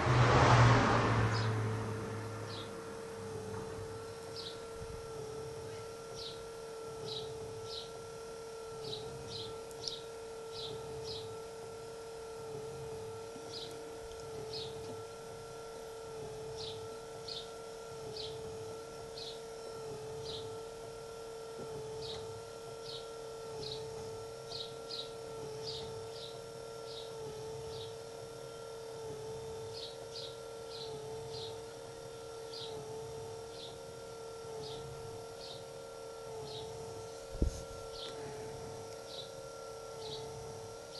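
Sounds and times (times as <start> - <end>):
steady machine hum: 0.0 - 40.9
small birds chirping: 4.3 - 4.7, 5.6 - 6.4, 7.0 - 8.0, 8.8 - 11.3, 13.5 - 13.8, 32.5 - 32.8, 37.9 - 38.2.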